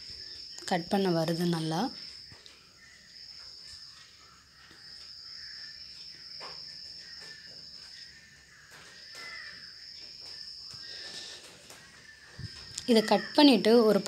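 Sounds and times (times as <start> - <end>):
high-pitched insect trill: 0.0 - 14.0.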